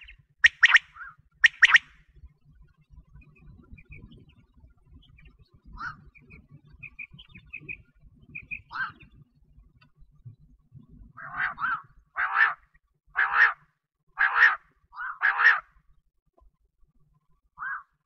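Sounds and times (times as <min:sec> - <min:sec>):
quail calling: 0:00.0 - 0:01.9, 0:08.4 - 0:09.1, 0:11.2 - 0:12.6, 0:13.2 - 0:13.6, 0:14.2 - 0:15.7, 0:17.6 - 0:17.9.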